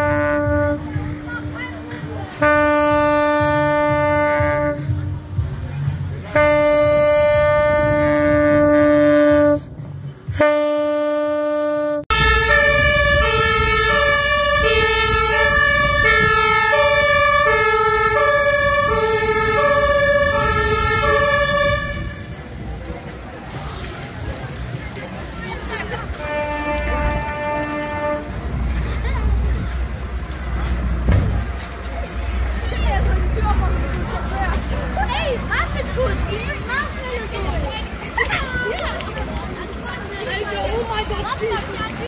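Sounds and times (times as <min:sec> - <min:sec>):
vehicle horn blasts: 0:10.4 - 0:22.3, 0:26.2 - 0:28.3
fire engine two-tone siren: 0:12.1 - 0:22.2.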